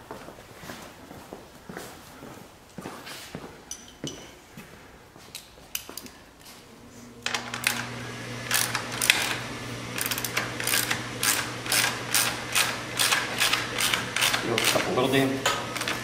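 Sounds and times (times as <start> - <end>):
furnace humming: 0.0 - 16.0
ratchet wrench clicking: 10.0 - 14.8.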